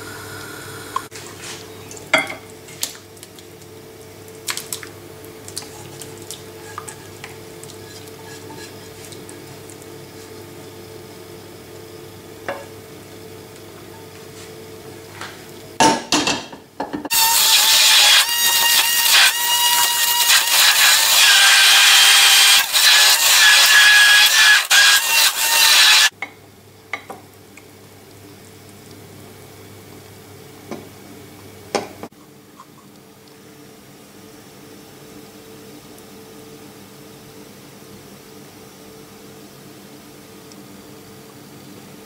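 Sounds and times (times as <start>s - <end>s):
stick blender running: 17.1s - 26.1s.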